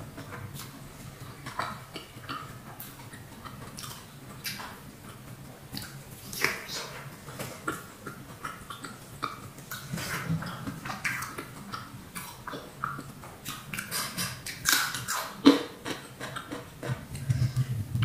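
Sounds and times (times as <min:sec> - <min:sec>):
chewing and mouth smacks: 0:00.0 - 0:17.8.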